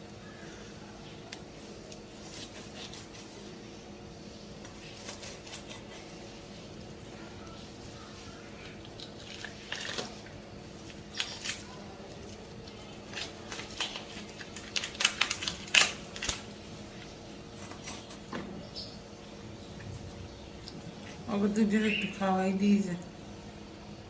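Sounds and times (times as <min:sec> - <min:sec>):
wet tearing of raw chicken: 0:01.3 - 0:03.6, 0:08.4 - 0:16.5.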